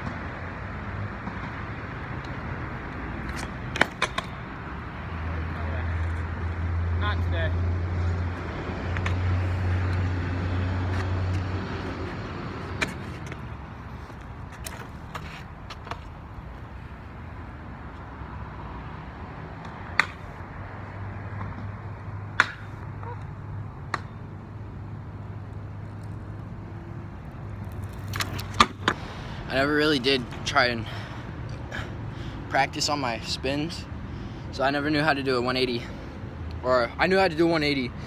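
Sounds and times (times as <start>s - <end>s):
road traffic hum: 0.0s - 38.0s
scooter clacking on pavement: 3.2s - 4.4s, 27.3s - 30.5s.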